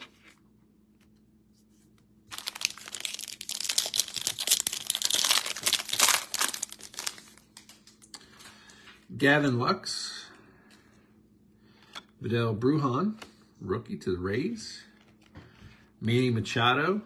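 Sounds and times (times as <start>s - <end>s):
foil wrapper tearing and crinkling: 2.3s - 8.1s.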